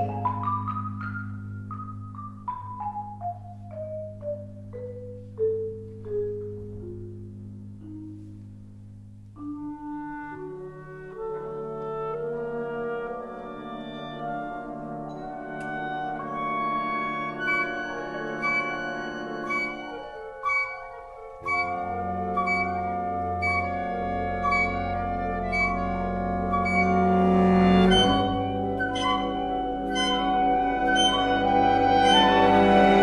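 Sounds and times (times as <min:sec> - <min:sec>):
symphonic band chords: 0:09.6 - 0:33.0.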